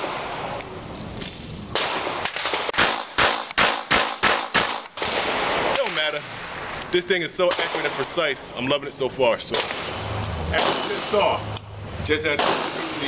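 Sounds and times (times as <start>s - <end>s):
pistol shots: 1.7s - 6.2s, 7.4s - 8.2s, 9.5s - 11.4s, 12.3s - 13.0s.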